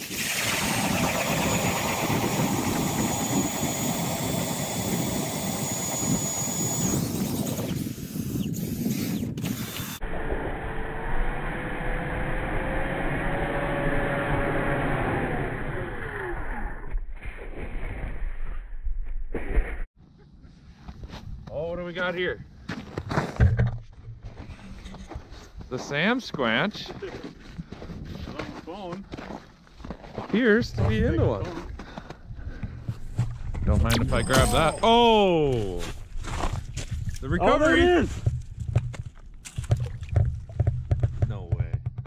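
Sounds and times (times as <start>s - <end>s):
ice auger grinding through ice: 0.0s - 8.3s
auger whining in free spin: 0.0s - 18.3s
knocks: 39.6s - 42.0s.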